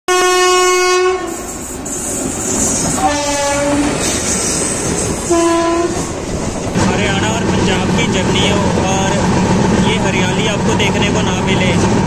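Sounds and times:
train horn blasts: 0.1 - 1.4, 3.0 - 4.0, 5.3 - 6.1
moving train on track: 0.1 - 12.0.

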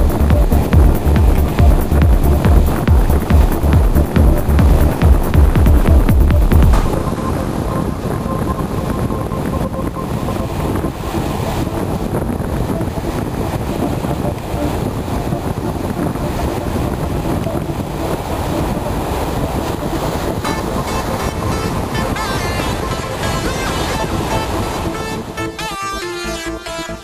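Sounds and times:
surf washing onto beach: 0.0 - 26.9
wind rumbling on microphone: 0.0 - 27.0.

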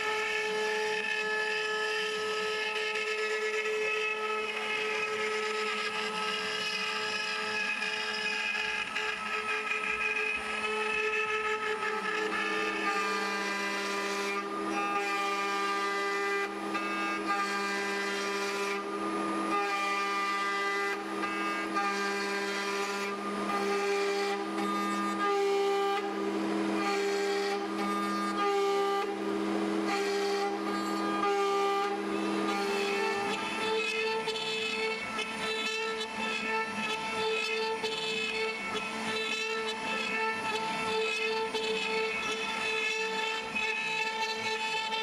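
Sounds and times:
router cutting wood: 0.0 - 45.0
router spindle whining: 0.0 - 45.0.

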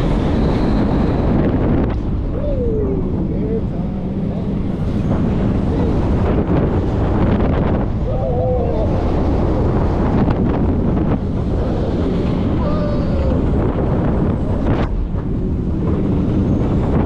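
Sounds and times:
roller coaster rumbling on track: 0.0 - 17.0
wind buffeting microphone: 0.0 - 17.0.

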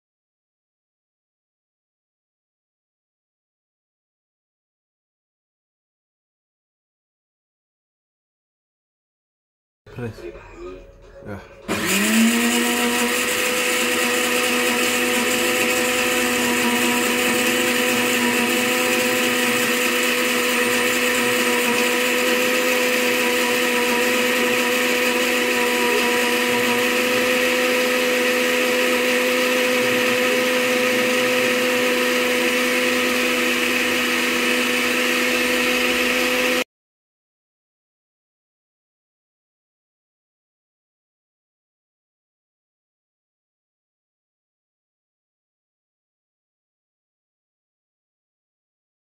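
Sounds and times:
blender motor whine: 11.7 - 36.7.

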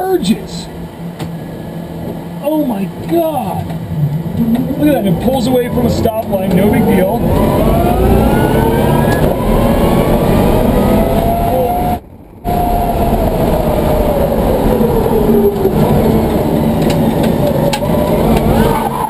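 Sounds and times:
road and tyre noise: 0.0 - 19.0
electric motor whining: 4.3 - 19.0.

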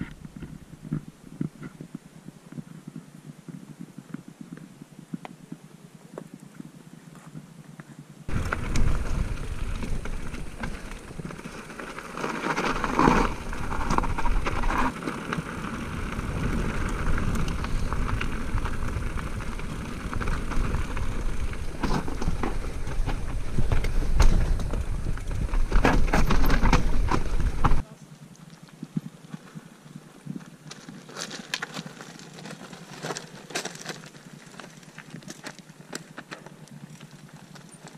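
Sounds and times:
wind rumble on microphone: 8.3 - 12.0, 12.6 - 27.8
bike rattling and knocking: 8.3 - 27.8
tyres crunching over stones: 8.3 - 27.8, 28.7 - 37.9.

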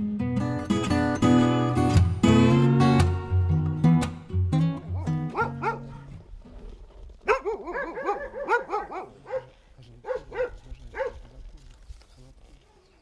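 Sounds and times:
acoustic guitar music: 0.0 - 6.6
dogs barking: 5.0 - 6.1, 7.2 - 11.3.

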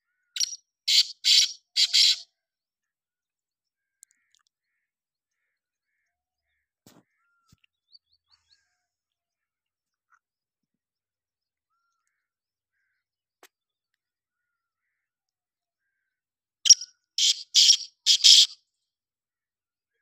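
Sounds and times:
bird harsh rasping call: 0.4 - 2.2, 16.7 - 18.6.

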